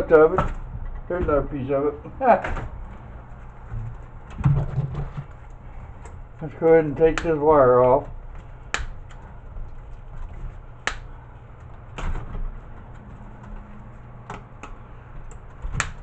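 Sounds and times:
low steady hum: 0.0s - 16.0s
wire cutters snipping: 7.0s - 8.0s.

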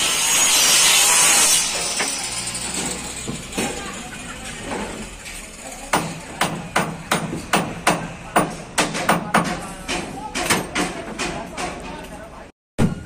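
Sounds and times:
hammer blows on timber: 5.9s - 11.8s.

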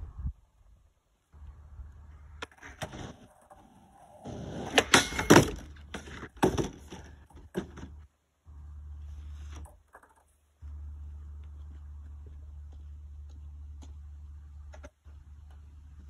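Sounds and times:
skateboard wheels rolling: 1.4s - 11.8s
skateboard clacking on planks: 2.3s - 8.0s.

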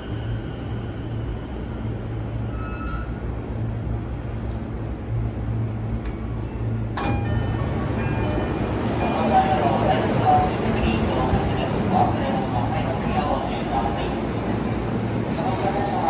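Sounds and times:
subway train interior hum: 0.0s - 16.0s.

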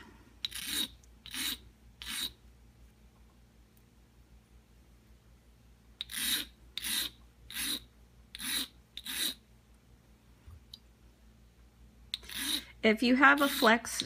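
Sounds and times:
stone scraping metal edge: 0.5s - 2.4s.

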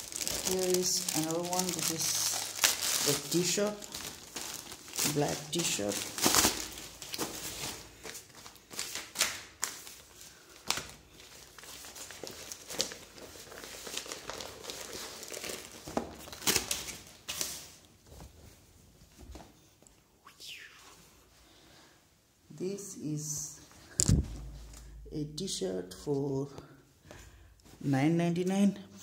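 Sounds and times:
plastic bag crinkling: 0.0s - 17.4s.

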